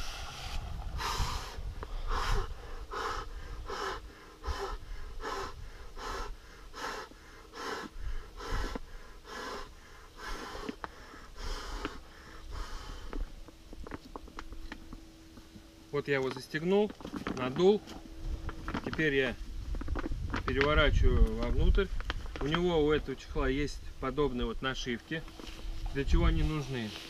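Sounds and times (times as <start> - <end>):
man blowing puffs of breath: 0.0 - 13.3.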